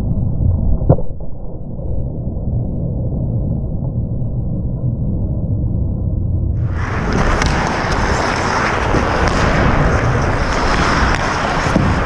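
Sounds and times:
wind on microphone: 0.0 - 12.0
ice skate blades scraping ice: 6.6 - 12.0.

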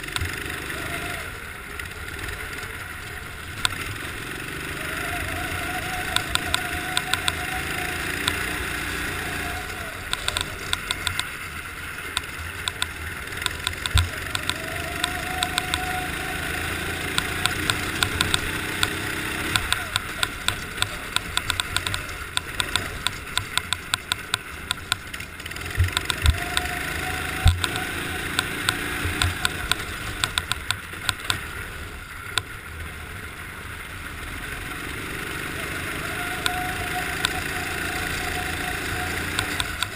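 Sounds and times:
kart engine revving: 0.0 - 39.9
sharp clicks and knocks: 0.1 - 0.4, 3.6 - 4.0, 6.1 - 7.4, 8.2 - 8.6, 10.1 - 11.4, 12.1 - 15.9, 17.1 - 26.8, 27.4 - 31.5, 39.3 - 39.9.

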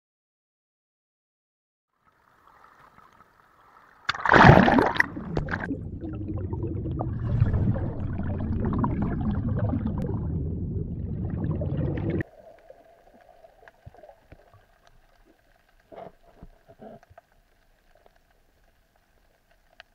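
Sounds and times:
underwater bubbling and rushing water: 2.0 - 19.9
water splash: 2.3 - 14.8.

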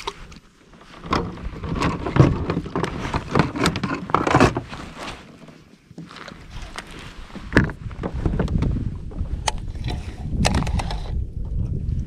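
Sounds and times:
fishing gear knocks and clicks: 1.0 - 8.7.

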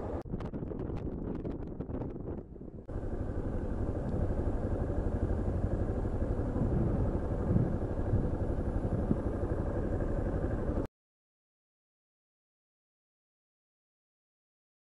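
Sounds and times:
motorcycle engine low rumble: 0.0 - 10.9.

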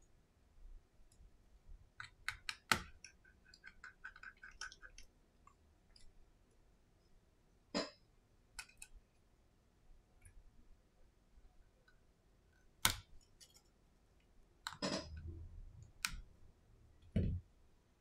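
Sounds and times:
fingers clicking and tapping phone: 1.9 - 6.2, 8.5 - 9.0, 12.6 - 13.7, 14.6 - 16.3.

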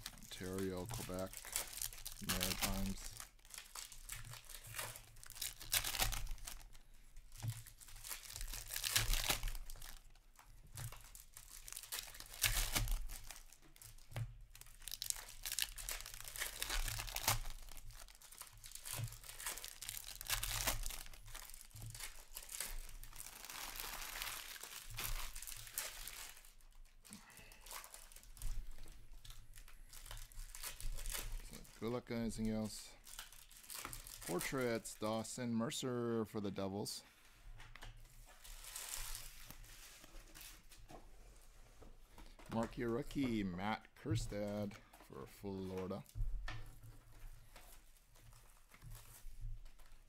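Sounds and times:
foil wrappers tearing and crinkling: 0.0 - 35.0, 38.3 - 40.8.

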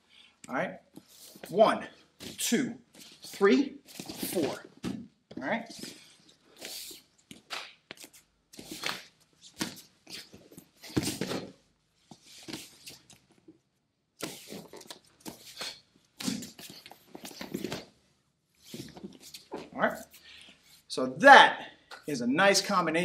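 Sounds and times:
foot scuffs: 3.0 - 5.0, 5.7 - 13.1, 18.6 - 20.2.

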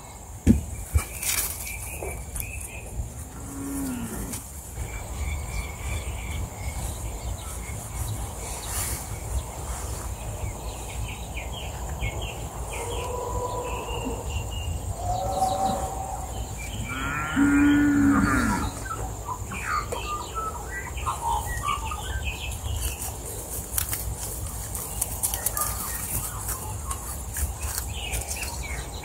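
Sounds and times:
small birds chirping: 0.0 - 29.0
cow mooing: 3.4 - 4.4, 16.8 - 18.8.

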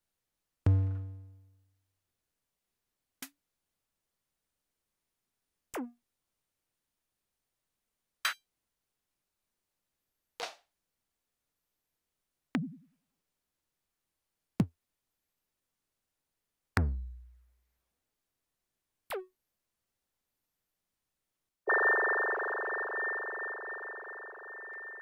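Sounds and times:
sustained synth tone: 21.7 - 25.0.

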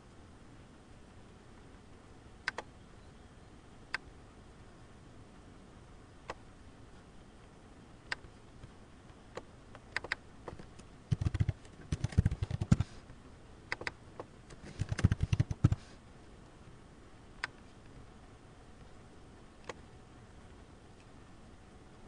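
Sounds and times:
keyboard typing: 11.1 - 13.0, 14.6 - 15.9.

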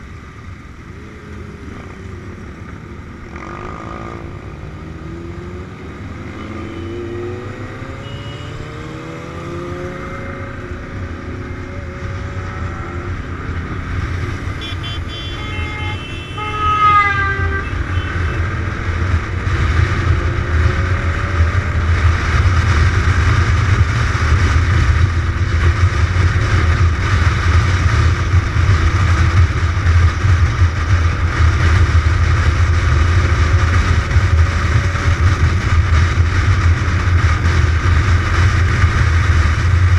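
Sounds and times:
motorcycle engine revving: 0.0 - 39.9
wind rushing over microphone: 0.0 - 39.9
horn toots: 6.3 - 7.3, 14.4 - 18.7.

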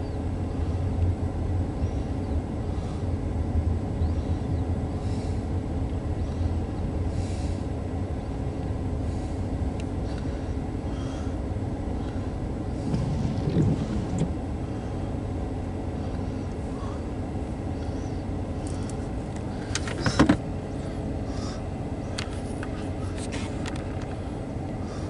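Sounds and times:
low rumble inside a car: 0.0 - 25.0
windshield wiper sweeping glass: 12.8 - 14.4.

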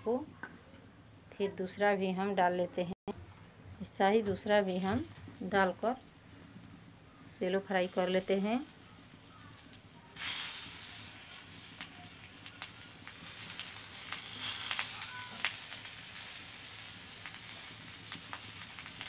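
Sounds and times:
food sizzling in oil: 7.6 - 19.0.

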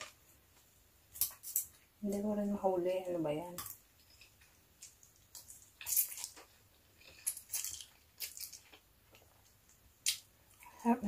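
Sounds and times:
slurping and chewing: 4.0 - 10.7.

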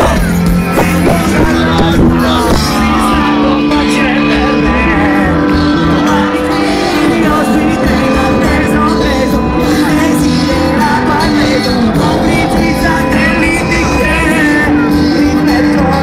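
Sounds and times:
live rock band playing: 0.0 - 16.0
person singing: 0.0 - 16.0.

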